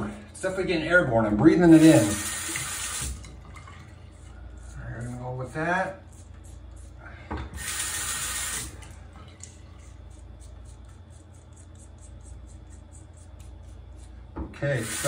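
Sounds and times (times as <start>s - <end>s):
faint steady hum: 0.0s - 15.0s
razor scraping stubble: 1.6s - 3.0s, 4.4s - 7.0s, 9.4s - 15.0s.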